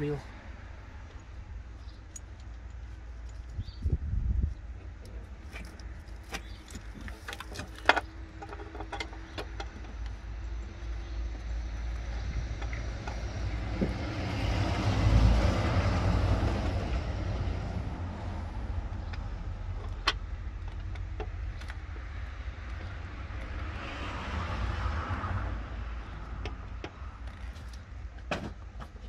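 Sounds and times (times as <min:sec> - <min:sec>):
low steady rumble: 0:00.0 - 0:23.7
road vehicle passing: 0:10.2 - 0:27.7.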